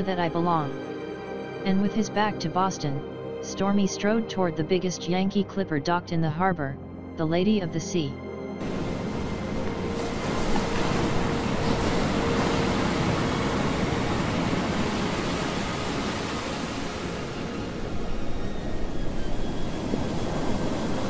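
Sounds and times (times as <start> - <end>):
ocean waves and surf: 0.0 - 3.0, 8.6 - 21.0.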